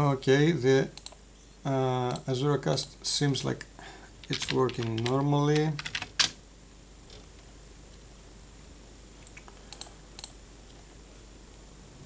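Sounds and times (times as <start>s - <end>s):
room hiss: 0.0s - 12.0s
keyboard keys clicking: 4.2s - 6.3s.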